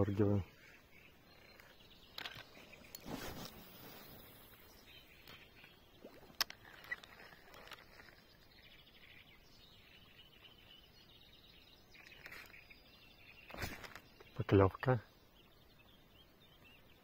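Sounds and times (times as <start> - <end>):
brief rustle: 1.4 - 4.6, 6.3 - 8.3, 12.0 - 12.7, 13.5 - 14.3.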